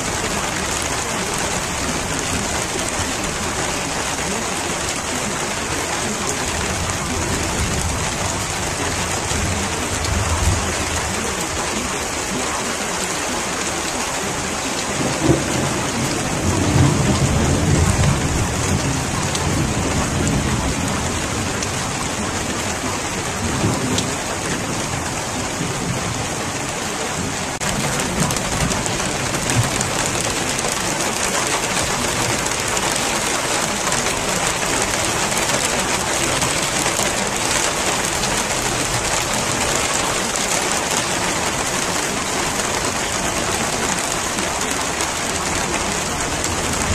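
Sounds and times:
steady rain falling: 0.0s - 46.9s
low thunder rumbling: 14.9s - 46.9s.

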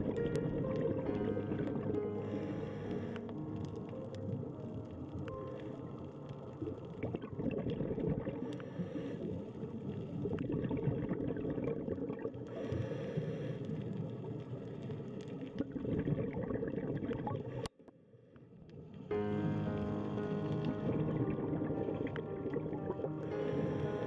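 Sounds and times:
gurgling bubbles: 0.0s - 17.7s, 19.9s - 24.0s
underwater rumbling: 0.0s - 17.7s, 18.5s - 24.0s
small underwater clicks: 0.0s - 19.1s.

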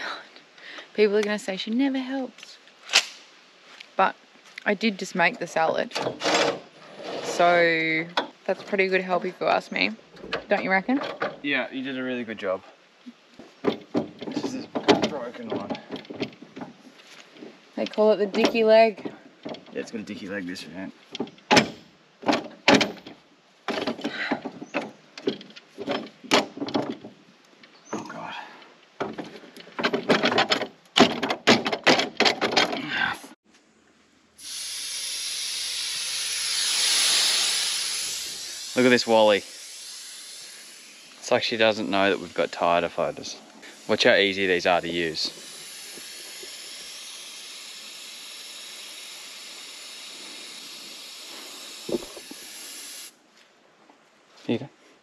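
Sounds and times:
metal rattle: 5.4s - 8.5s, 10.1s - 11.5s, 13.6s - 17.5s, 21.0s - 27.3s, 29.0s - 32.8s
metal clanks and knocks: 5.9s - 7.5s, 10.1s - 11.5s, 13.6s - 16.9s, 21.1s - 27.2s, 29.0s - 32.8s
air hissing out of tyre valve: 34.4s - 53.2s.

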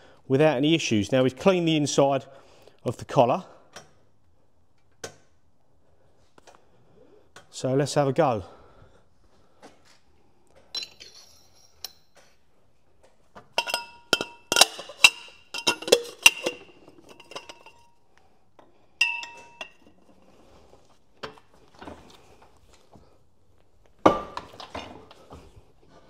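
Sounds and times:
steel parts clinking and ringing: 10.7s - 12.1s, 13.6s - 17.9s, 19.0s - 20.1s.

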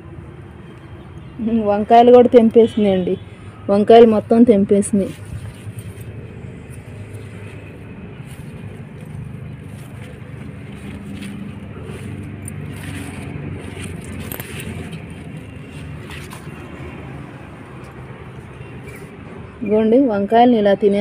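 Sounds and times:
low outdoor rumble: 0.0s - 21.0s
rustles: 5.0s - 16.8s.

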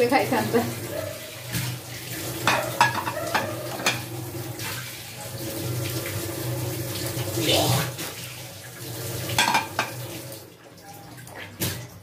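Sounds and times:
steel plates and bowls clinking: 2.4s - 4.1s, 9.4s - 10.0s.

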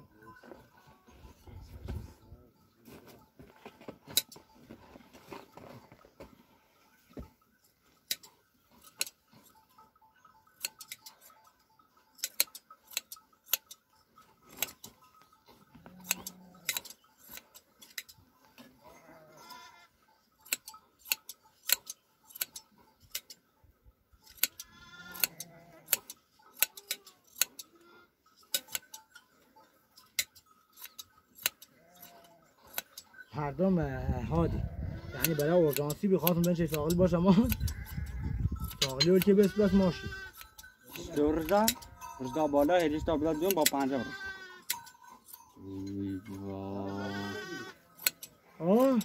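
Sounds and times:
hand shears snipping: 8.1s - 9.2s, 12.2s - 13.8s, 14.5s - 15.0s, 16.0s - 18.2s, 20.4s - 23.4s, 24.2s - 27.7s, 28.5s - 29.0s, 30.0s - 33.1s, 35.2s - 41.9s, 42.6s - 43.9s, 47.9s - 49.0s
sheep bleating: 15.8s - 16.8s, 18.8s - 19.9s, 24.5s - 26.0s, 31.7s - 32.6s, 34.2s - 35.9s, 37.3s - 40.4s, 43.6s - 44.7s, 46.7s - 48.0s.

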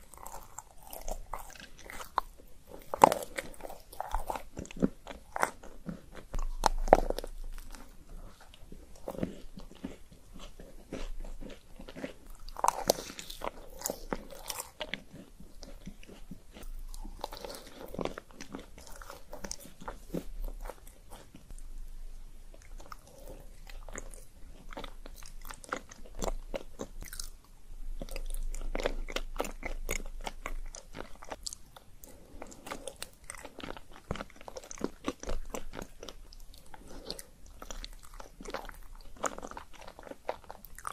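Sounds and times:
crunchy bites: 0.0s - 21.4s, 22.6s - 27.4s
chewing with mouth clicks: 0.0s - 21.6s, 22.5s - 40.9s.

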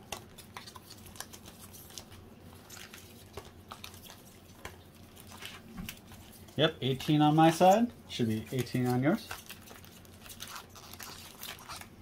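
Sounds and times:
foil packs crinkling: 0.0s - 12.0s.

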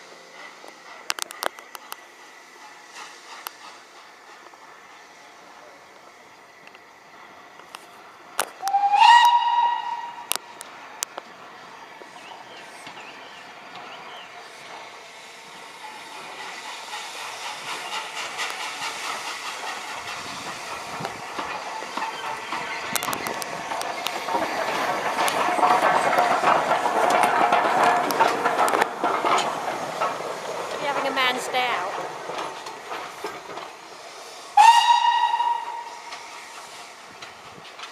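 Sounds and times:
metallic clanks of wheels on track: 0.0s - 37.9s
steam locomotive hissing: 0.0s - 37.9s
steam whistle blast: 8.6s - 10.4s, 34.6s - 36.1s.

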